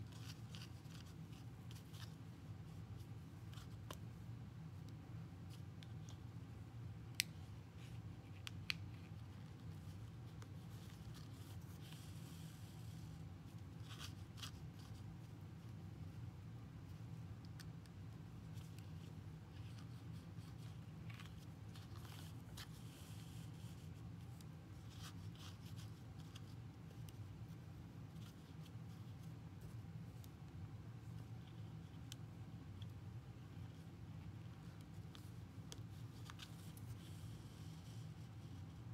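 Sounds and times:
yarn handling sounds: 0:00.0 - 0:38.9.

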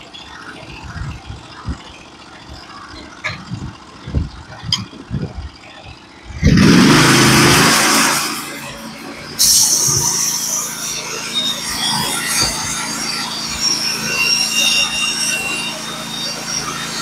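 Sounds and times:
engine idling: 0:00.0 - 0:17.0
saw blade running: 0:05.7 - 0:17.0.

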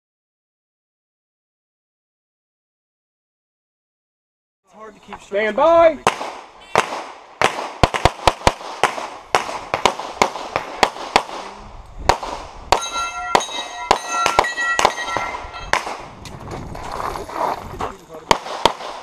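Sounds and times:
rapid pistol shots: 0:06.0 - 0:12.8, 0:18.3 - 0:19.0
steel targets ringing: 0:12.7 - 0:15.9.

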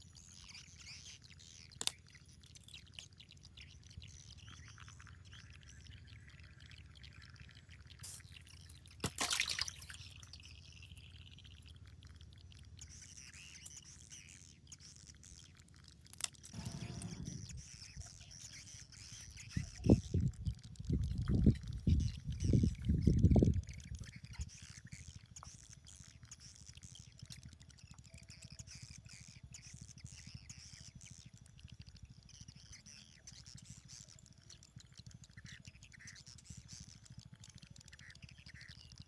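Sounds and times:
birds chirping: 0:16.5 - 0:18.7.

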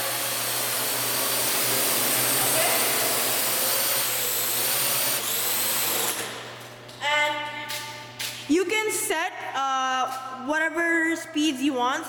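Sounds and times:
drone propellers whirring: 0:00.0 - 0:06.4.

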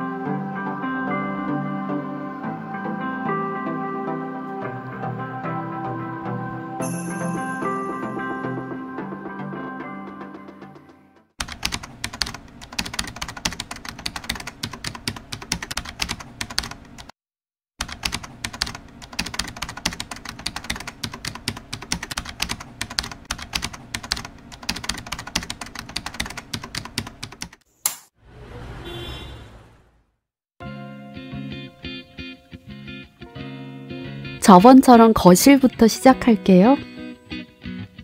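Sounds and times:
keyboard typing clicks: 0:11.4 - 0:17.1, 0:17.8 - 0:27.6.

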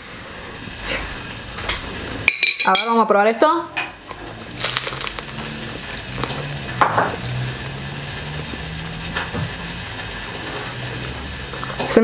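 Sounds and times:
crisp crunch: 0:04.2 - 0:07.3
person chewing toast: 0:04.3 - 0:07.4.

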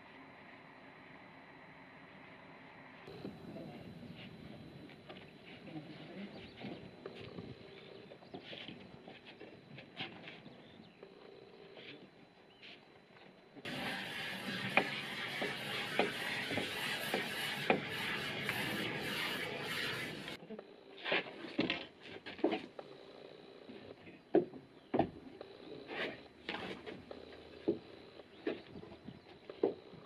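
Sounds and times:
foam gun spraying hiss: 0:13.7 - 0:20.4
knocks and scrapes of concrete panel: 0:13.7 - 0:20.4.

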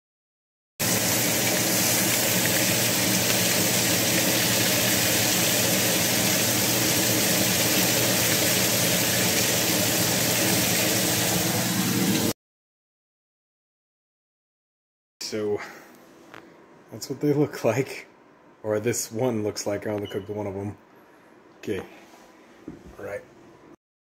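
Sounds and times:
meat sizzling in a frying pan: 0:00.8 - 0:12.3.

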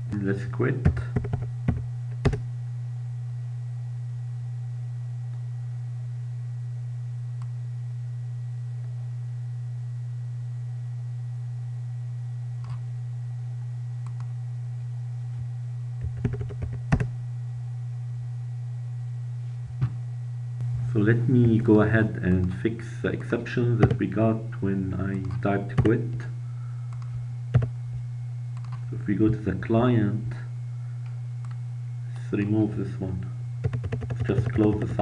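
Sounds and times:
steady low hum: 0:00.0 - 0:35.0
computer keyboard keystrokes: 0:00.8 - 0:02.4, 0:16.0 - 0:17.1, 0:33.6 - 0:34.8.

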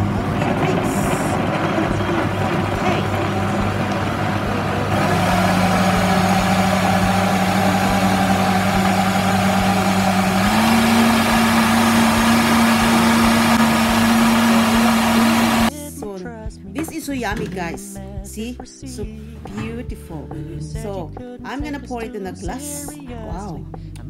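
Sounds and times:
blender motor running: 0:00.0 - 0:15.7.

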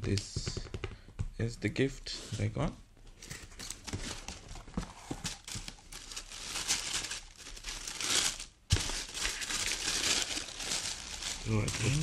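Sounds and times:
tissue paper rustling: 0:03.8 - 0:12.0.

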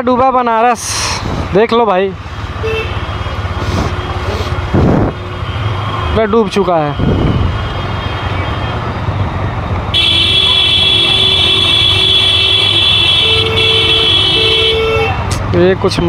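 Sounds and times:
vehicle horns honking: 0:02.6 - 0:03.2, 0:09.9 - 0:15.4.

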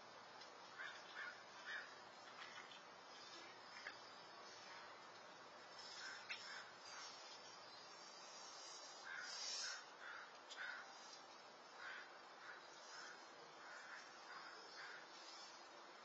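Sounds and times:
steady hiss: 0:00.0 - 0:16.0
distant bird calls: 0:05.7 - 0:15.7.

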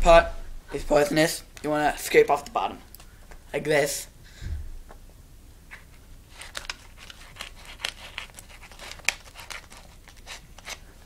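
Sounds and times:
paper crinkling and tearing: 0:06.3 - 0:10.9.

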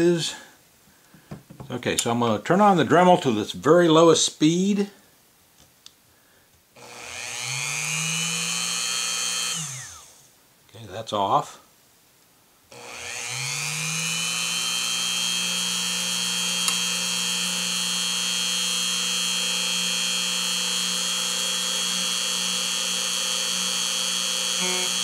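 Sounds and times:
rotary tool whining: 0:06.8 - 0:10.3, 0:12.7 - 0:25.0.

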